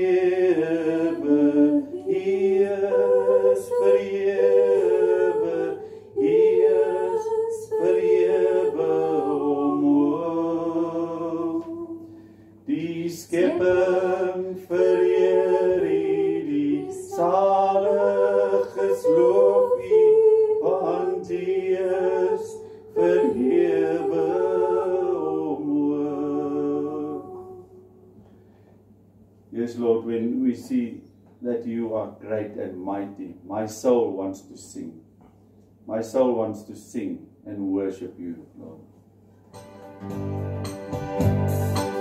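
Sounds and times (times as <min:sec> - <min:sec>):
person singing unaccompanied: 0:00.0 - 0:12.0, 0:12.7 - 0:27.7
steady low hum: 0:00.0 - 0:39.6.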